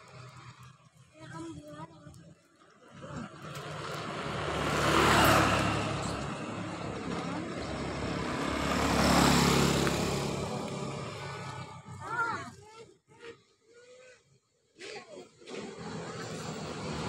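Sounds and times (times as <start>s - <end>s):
small motorcycles passing: 2.6s - 12.6s, 15.4s - 17.0s.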